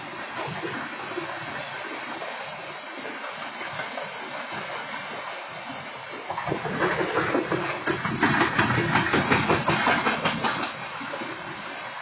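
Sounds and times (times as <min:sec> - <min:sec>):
train wheels clattering over rails: 0:06.3 - 0:11.5.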